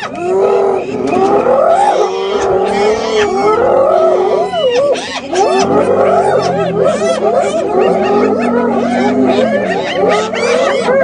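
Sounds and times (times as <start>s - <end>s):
hyenas squealing calls: 0.0s - 11.0s.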